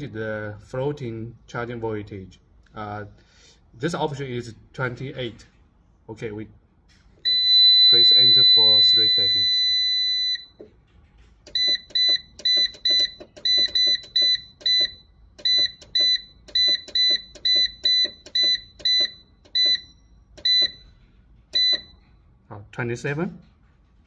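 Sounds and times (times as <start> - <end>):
long beep: 7.2 - 10.6
keypad buzzer beeping: 7.3 - 10.7, 11.5 - 22.0.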